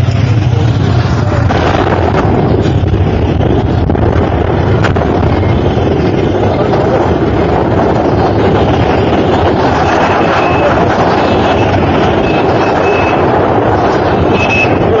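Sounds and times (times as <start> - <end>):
loud rumbling noise: 0.0 - 15.0
wind buffeting microphone: 0.0 - 15.0.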